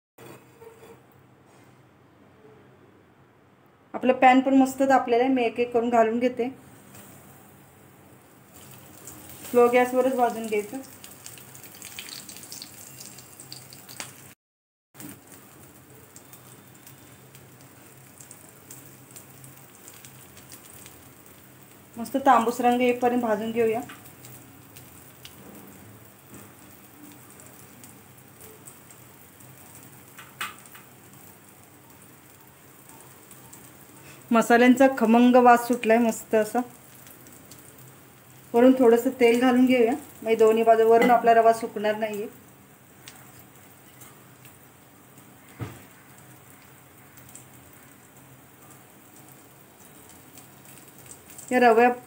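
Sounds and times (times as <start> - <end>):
food sizzling in oil: 6.6 - 14.4, 15.0 - 52.0.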